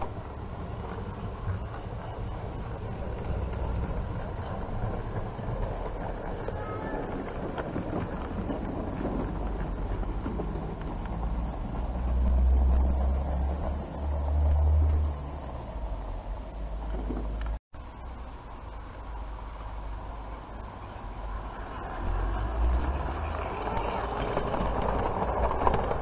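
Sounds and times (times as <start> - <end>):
wind on microphone: 0.0 - 16.2
model train rolling on track: 0.0 - 26.0.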